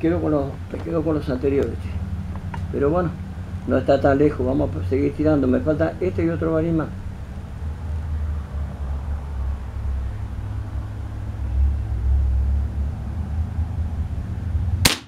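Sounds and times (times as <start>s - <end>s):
constant hum: 0.0s - 15.0s.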